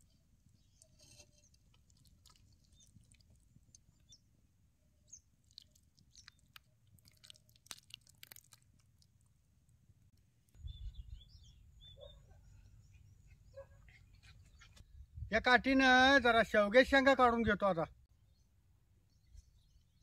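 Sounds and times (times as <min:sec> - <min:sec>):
faint chewing: 0:00.0 - 0:04.1, 0:05.4 - 0:10.6.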